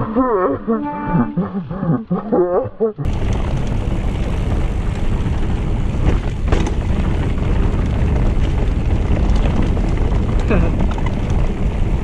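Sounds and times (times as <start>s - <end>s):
tyres rumbling on dirt track: 3.0s - 12.0s
wind buffeting microphone: 3.0s - 12.0s
bike rattling: 3.1s - 12.0s.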